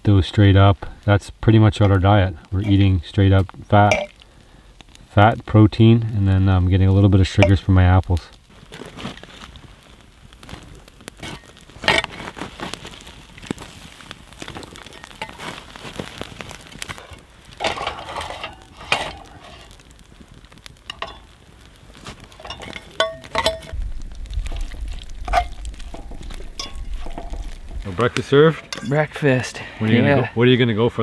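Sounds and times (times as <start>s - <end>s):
meat sizzling in a pan: 0.1s - 30.0s
utensil scraping a pan: 11.2s - 12.4s, 17.0s - 19.8s, 22.1s - 29.6s.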